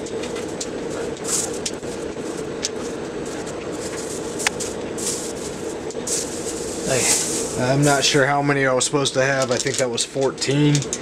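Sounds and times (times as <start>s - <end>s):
metal turnings rustling: 0.0s - 8.3s
steady machine hum: 0.0s - 11.0s.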